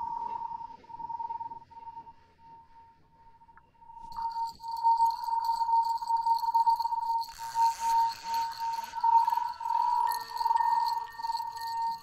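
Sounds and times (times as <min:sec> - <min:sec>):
high-pitched pure tone: 0:04.2 - 0:12.0.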